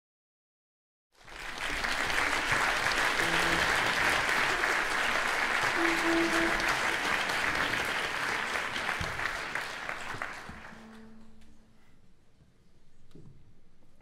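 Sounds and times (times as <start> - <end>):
audience applauding: 1.2 - 11.2.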